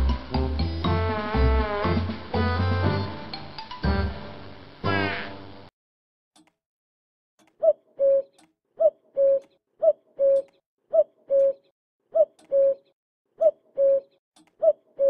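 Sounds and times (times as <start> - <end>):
cuckoo calling: 7.6 - 15.0.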